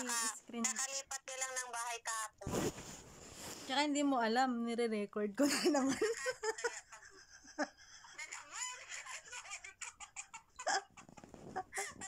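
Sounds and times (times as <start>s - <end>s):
women giggling and laughing: 5.4s - 12.0s.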